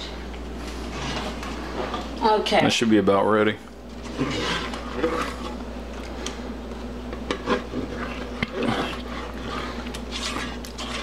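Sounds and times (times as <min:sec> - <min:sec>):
spatula scraping saucepan: 0:00.8 - 0:02.0, 0:04.0 - 0:05.6, 0:07.3 - 0:11.0.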